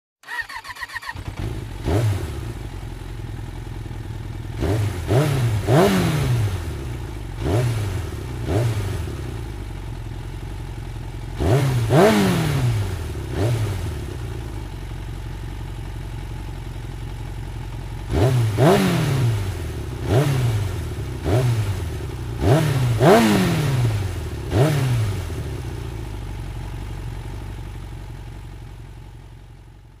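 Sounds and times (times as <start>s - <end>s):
motorcycle engine cranking: 0.2s - 2.1s
motorcycle engine revving: 0.2s - 28.7s
motorcycle engine idling: 0.2s - 30.0s.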